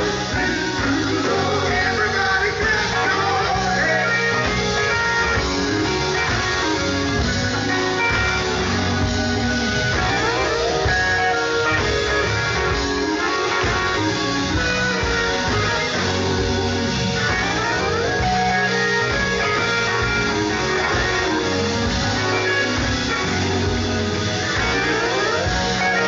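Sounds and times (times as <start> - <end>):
electric guitar: 0.0 - 26.0
live gospel band playing: 0.0 - 26.0.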